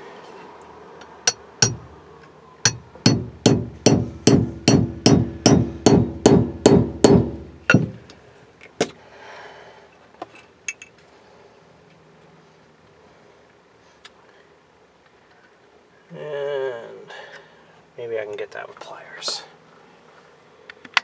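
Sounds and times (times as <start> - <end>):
hammer striking pin punch: 1.3 - 2.0, 2.7 - 8.1.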